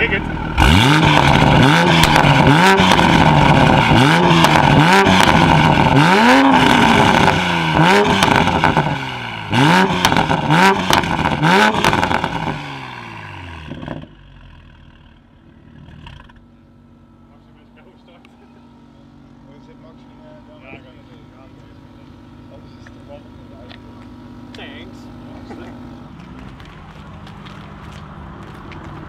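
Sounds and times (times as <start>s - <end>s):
car engine idling: 0.0s - 29.0s
car engine revving: 0.0s - 29.0s
exhaust pops and crackles: 0.6s - 9.0s, 9.8s - 12.6s, 13.6s - 14.2s, 21.5s - 29.0s.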